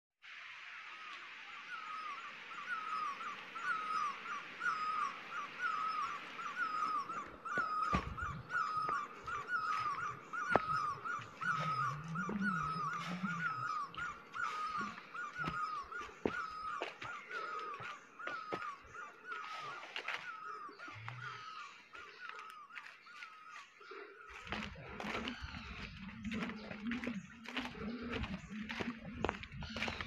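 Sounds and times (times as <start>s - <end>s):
high wavering animal call: 1.0s - 30.0s
footsteps crunching dry leaves: 5.3s - 30.0s.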